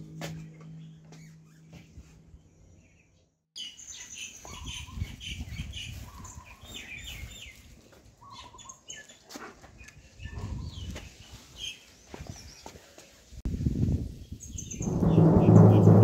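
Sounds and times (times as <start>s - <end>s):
low rumbling noise: 14.8s - 16.0s.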